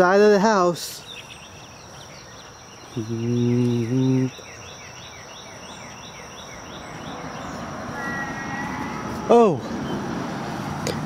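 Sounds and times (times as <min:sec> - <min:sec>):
insects buzzing and chirping: 0:00.0 - 0:11.0
man humming: 0:03.0 - 0:04.4.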